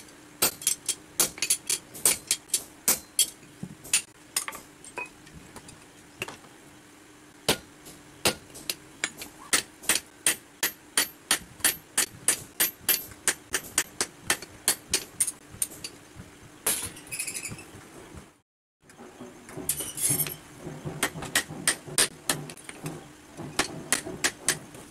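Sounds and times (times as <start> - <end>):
hammer striking steel on anvil: 0.4 - 5.1, 7.5 - 15.4, 19.6 - 24.7.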